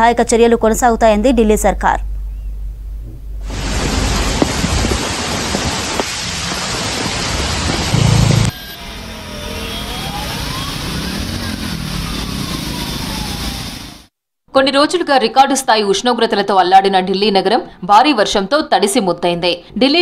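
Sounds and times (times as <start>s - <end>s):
heavy rain hissing on a road: 3.5s - 8.5s
low rumble: 7.8s - 8.6s
faint sliding tone: 8.0s - 8.6s.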